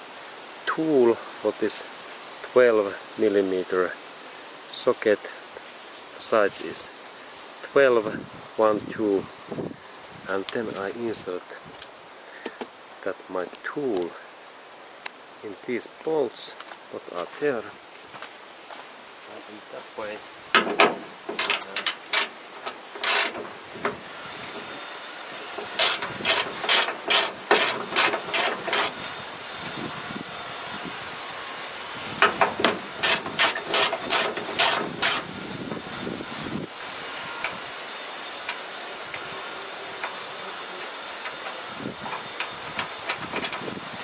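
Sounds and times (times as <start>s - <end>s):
steady hiss: 0.0s - 44.0s
hand ratchet clicking: 21.3s - 23.5s, 25.5s - 29.0s, 32.2s - 35.3s.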